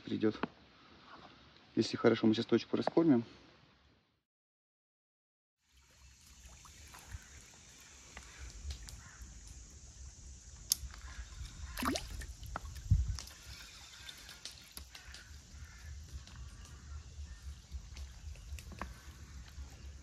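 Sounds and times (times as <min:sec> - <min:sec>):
water sloshing and dripping: 0:05.6 - 0:09.6, 0:10.6 - 0:16.4.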